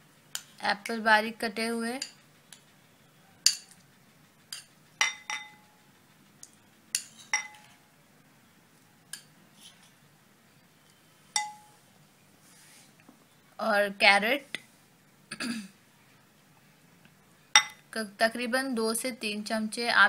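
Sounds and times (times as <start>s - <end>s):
metal spoon clinking against glass bowls: 3.4s - 3.8s, 4.5s - 5.6s, 7.0s - 7.8s, 11.4s - 11.7s, 17.6s - 17.8s.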